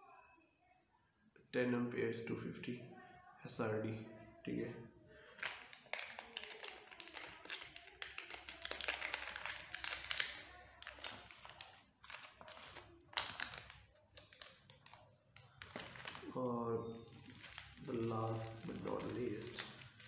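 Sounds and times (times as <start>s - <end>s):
plastic packaging crinkling: 5.2s - 20.0s.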